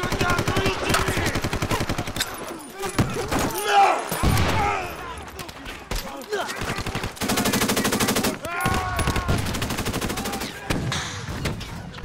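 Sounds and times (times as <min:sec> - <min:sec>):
automatic gunfire: 0:00.0 - 0:02.2, 0:06.6 - 0:08.4, 0:09.0 - 0:10.6.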